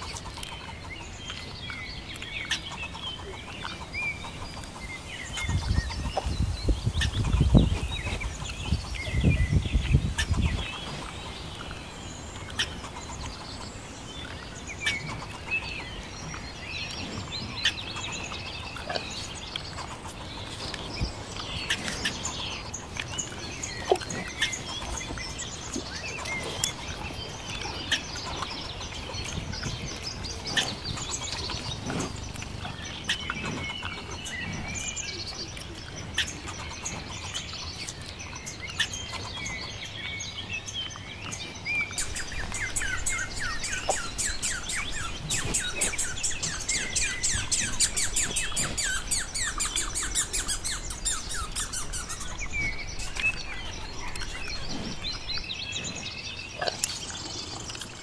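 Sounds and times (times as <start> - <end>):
squirrel chattering: 42.0 - 54.6.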